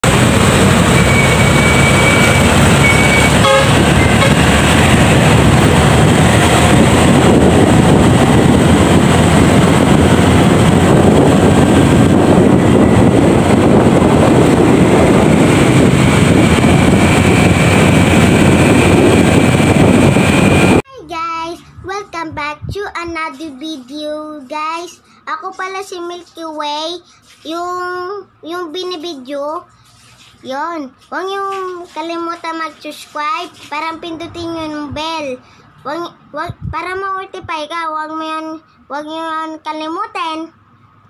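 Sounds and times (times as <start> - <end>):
wind rushing over microphone: 0.0 - 20.9, 21.5 - 23.3, 36.0 - 37.7
brief beep: 1.0 - 4.3.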